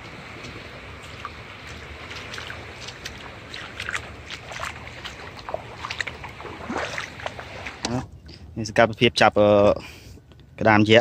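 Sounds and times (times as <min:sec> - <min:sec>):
hiss of water and wind: 0:00.0 - 0:08.6
feet wading through shallow water: 0:00.4 - 0:07.9.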